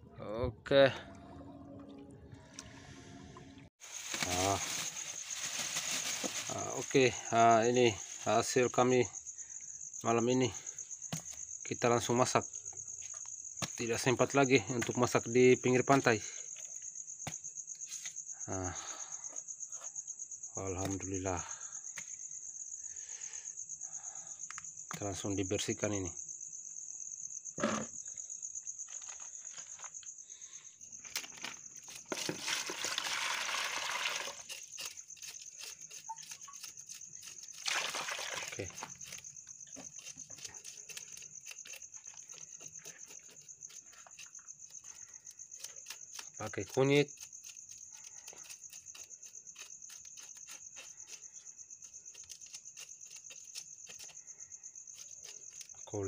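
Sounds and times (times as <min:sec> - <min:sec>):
crickets trilling: 0:03.6 - 0:56.0
knife scraping fish scales: 0:34.1 - 0:37.7, 0:38.7 - 0:46.4, 0:47.1 - 0:54.2.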